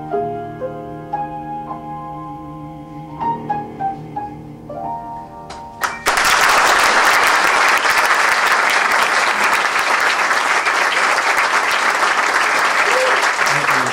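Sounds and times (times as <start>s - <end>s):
piano chords ringing: 0.0s - 6.8s
audience applause: 5.8s - 13.9s.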